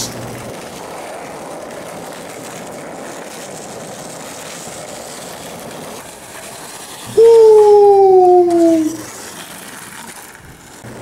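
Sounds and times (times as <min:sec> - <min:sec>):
skateboard wheels rolling on concrete: 0:00.0 - 0:07.2, 0:09.0 - 0:11.0.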